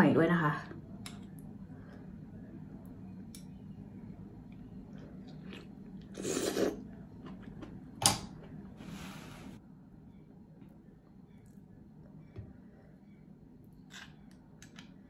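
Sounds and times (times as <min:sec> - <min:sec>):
faint chewing: 0:04.5 - 0:07.8
slurping an oyster: 0:04.8 - 0:07.6.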